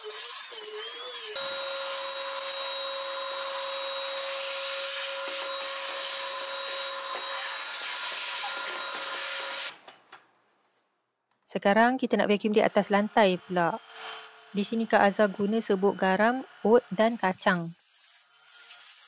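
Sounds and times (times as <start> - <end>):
stick vacuum whining and hissing: 0.0 - 9.9.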